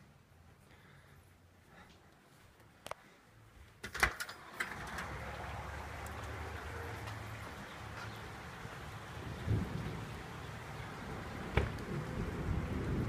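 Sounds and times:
heavy rain hissing: 4.5 - 13.0
sharp knocks of door opening: 11.5 - 11.8.

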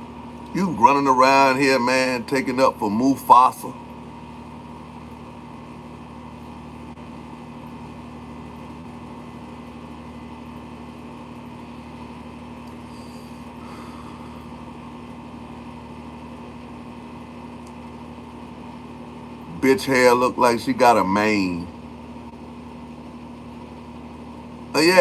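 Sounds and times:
steady mechanical hum: 0.0 - 25.0.

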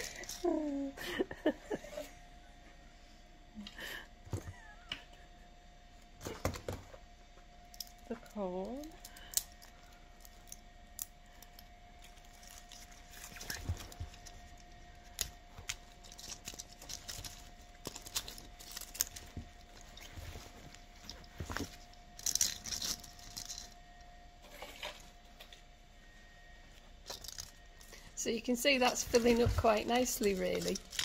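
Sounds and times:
faint steady hum: 0.0 - 31.0
foliage rustling and crackling: 11.5 - 23.7.

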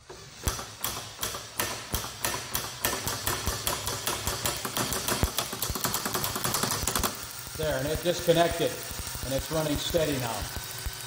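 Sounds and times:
sharp mechanical clicks: 0.4 - 7.4.

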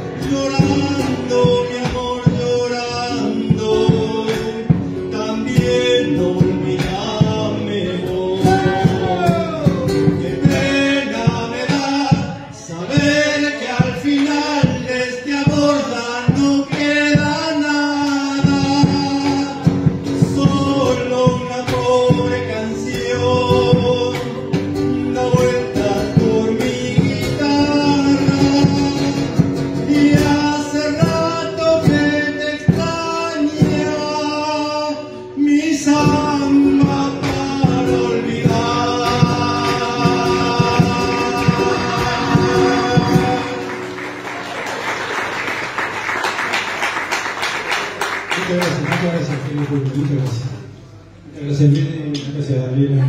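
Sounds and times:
two men singing: 0.0 - 44.0
guitar: 0.0 - 53.0
audience applauding: 41.9 - 50.5.

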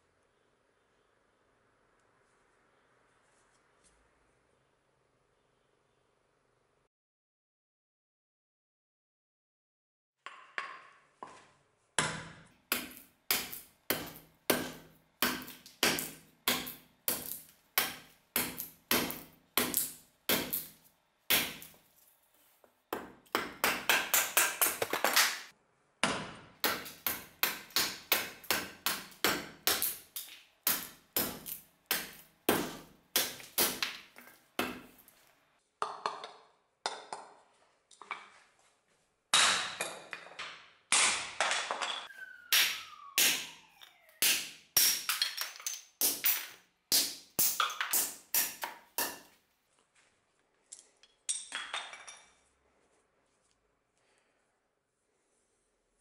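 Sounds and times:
axe chopping wood on block: 12.0 - 21.8, 22.9 - 35.0, 39.3 - 41.6, 42.5 - 43.5, 44.2 - 49.3.

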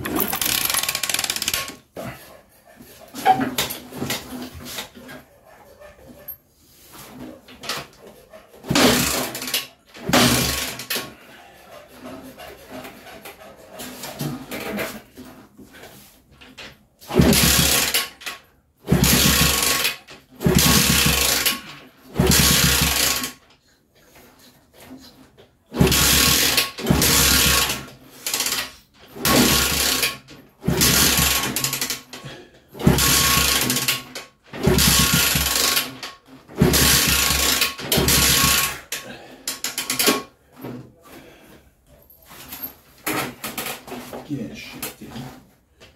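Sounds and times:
small engine kick-started turning over: 0.0 - 1.8, 8.7 - 11.1, 17.1 - 18.3, 18.9 - 23.4, 25.7 - 32.2, 32.8 - 39.0.

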